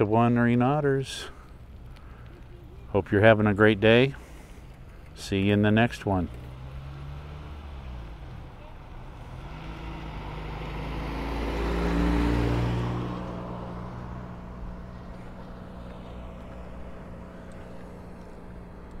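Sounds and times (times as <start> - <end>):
low engine hum: 1.2 - 19.0
car driving past: 6.0 - 19.0.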